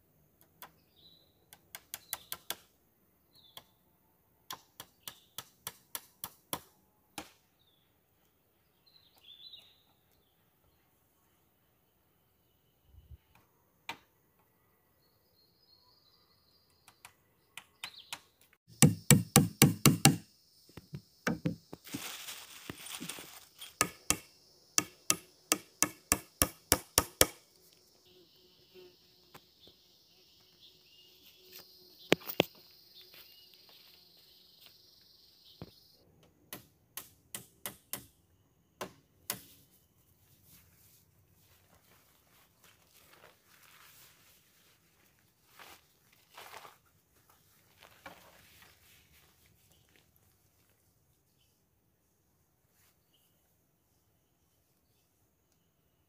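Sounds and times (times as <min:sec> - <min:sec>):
hand tool chopping blows: 0:18.7 - 0:20.2, 0:23.8 - 0:27.4.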